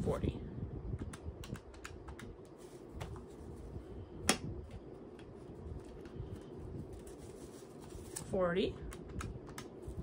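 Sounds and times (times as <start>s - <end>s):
banknotes being handled: 4.7s - 10.0s.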